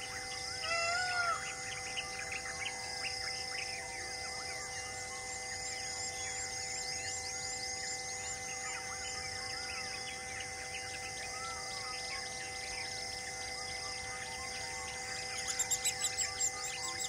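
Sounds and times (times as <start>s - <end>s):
steady background drone: 0.0s - 17.0s
birds chirping and whistling: 5.0s - 17.0s.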